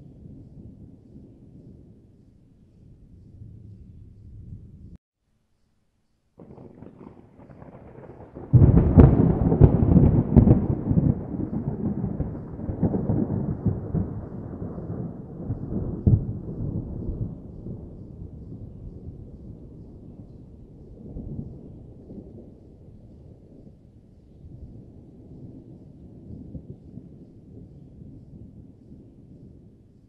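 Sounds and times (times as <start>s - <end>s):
thunder rumbling and crackling: 0.0s - 5.0s, 6.4s - 30.0s
loud thunderclap: 6.4s - 19.8s.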